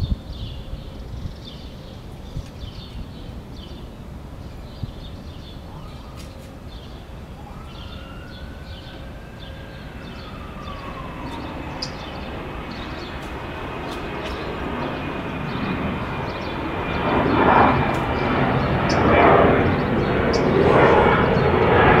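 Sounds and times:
faint whine gliding up and down: 0:00.0 - 0:22.0
passing engine rumble: 0:03.0 - 0:22.0.

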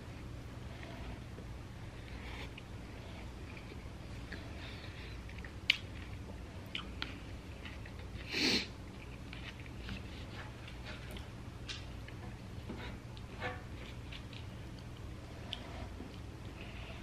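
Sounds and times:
person chewing food: 0:01.9 - 0:11.4.

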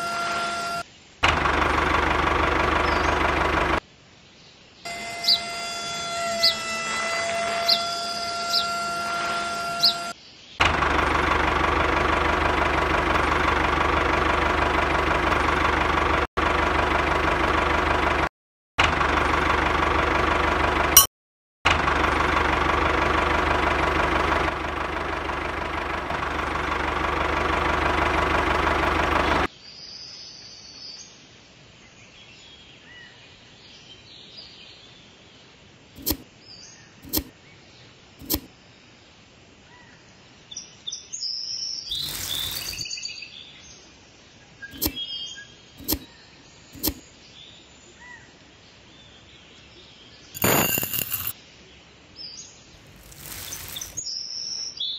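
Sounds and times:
small electric motor whining: 0:00.0 - 0:00.8, 0:04.9 - 0:10.2, 0:41.9 - 0:42.8, 0:50.4 - 0:51.4, 0:52.8 - 0:54.0
sharp clicks: 0:36.0 - 0:36.2, 0:38.2 - 0:38.5, 0:44.8 - 0:45.0, 0:46.8 - 0:47.0.

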